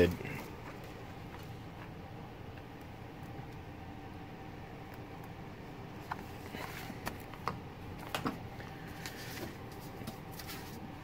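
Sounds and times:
paper rustling: 8.8s - 11.0s.

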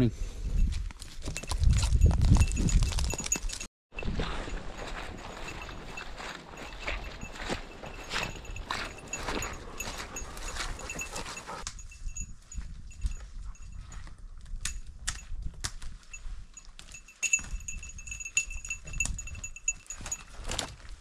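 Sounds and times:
high bell-like tinkling: 1.4s - 4.1s, 5.0s - 14.1s, 16.1s - 20.3s
footsteps through brush: 4.1s - 11.6s.

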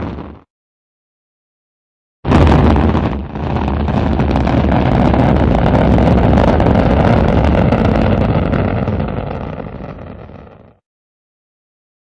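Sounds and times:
rocket engine roar: 2.3s - 10.6s.

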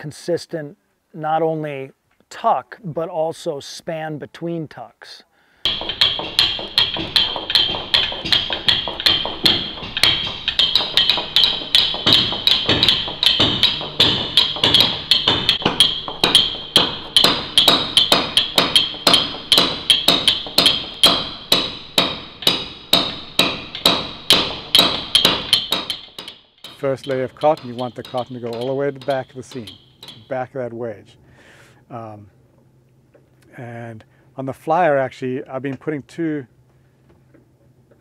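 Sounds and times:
mallet striking caulking iron: 5.6s - 30.5s.

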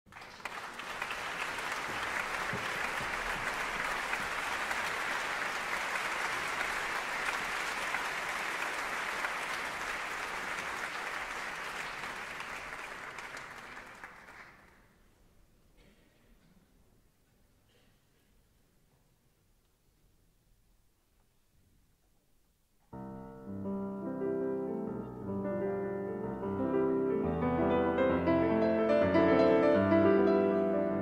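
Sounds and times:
audience applauding: 0.1s - 15.0s.

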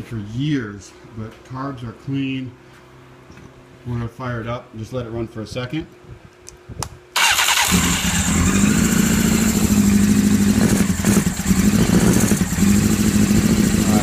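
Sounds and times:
motorcycle engine starting and running: 7.2s - 14.0s.

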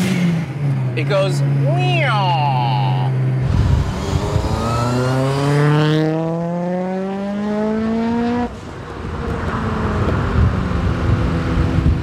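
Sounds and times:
car engine accelerating: 2.8s - 12.0s.

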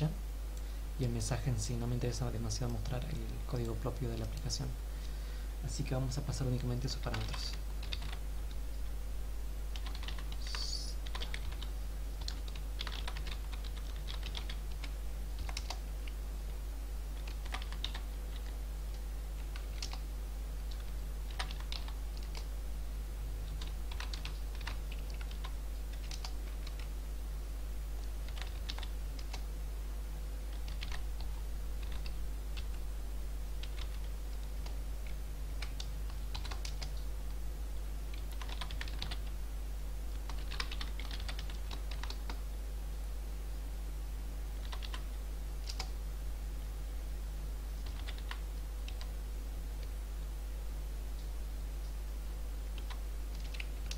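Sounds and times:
low electrical hum: 0.0s - 53.9s
typing on computer keyboard: 7.1s - 8.2s, 9.7s - 15.8s, 17.2s - 18.6s, 19.4s - 20.0s, 20.7s - 22.5s, 23.6s - 26.9s, 28.3s - 29.4s, 30.5s - 31.0s, 31.8s - 32.8s, 35.6s - 36.9s, 38.1s - 39.2s, 40.3s - 42.4s, 44.6s - 45.0s, 45.6s - 45.9s, 47.8s - 49.1s, 52.8s - 53.9s.

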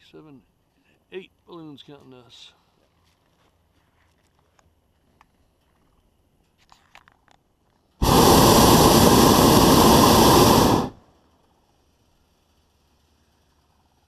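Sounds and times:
propane burner roaring: 8.0s - 11.0s.

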